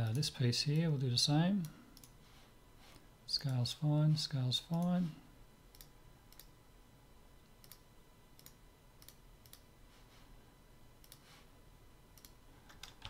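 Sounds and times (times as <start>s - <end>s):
faint computer mouse clicks: 11.0s - 11.2s.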